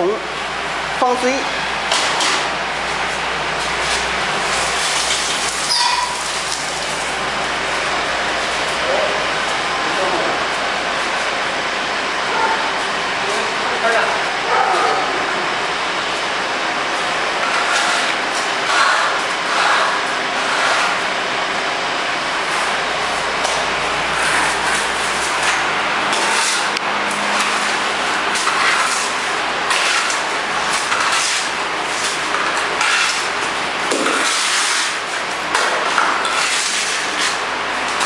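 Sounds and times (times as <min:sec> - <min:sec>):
mortar scraping rasps: 0:17.4 - 0:21.1, 0:23.4 - 0:38.0.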